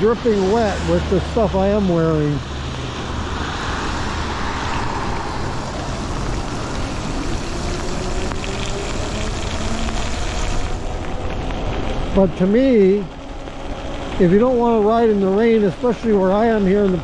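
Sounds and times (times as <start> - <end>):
tyre hiss on wet pavement: 0.0 - 17.0
wind rush on microphone: 1.8 - 14.8.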